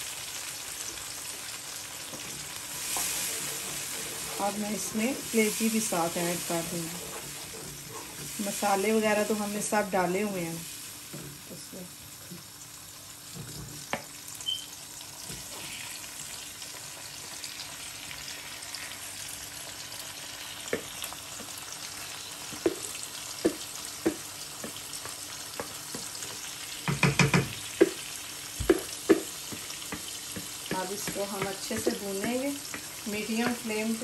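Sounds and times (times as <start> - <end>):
vegetables sizzling in oil: 0.0 - 34.0
wooden spatula knocking on pan: 22.5 - 34.0.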